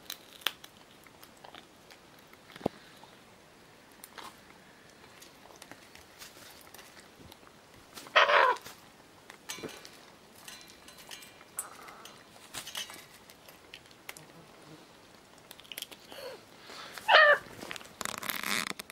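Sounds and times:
beaks clicking on seeds and bowls: 0.0 - 3.0, 3.9 - 14.5, 15.1 - 18.9
parrot wavering call: 8.1 - 8.6, 17.0 - 17.4.

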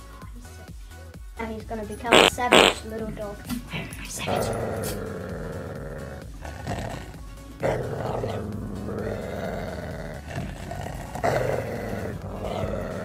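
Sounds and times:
background music: 0.0 - 13.0
dog growling in play: 4.2 - 13.0.

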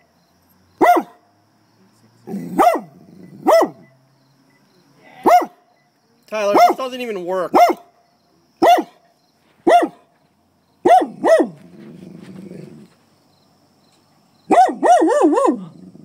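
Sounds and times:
dog barking sharply: 0.8 - 1.2, 2.6 - 3.8, 5.2 - 5.6, 6.5 - 6.8, 7.5 - 7.9, 8.6 - 9.0, 9.6 - 10.1, 10.8 - 11.6, 14.5 - 15.6.

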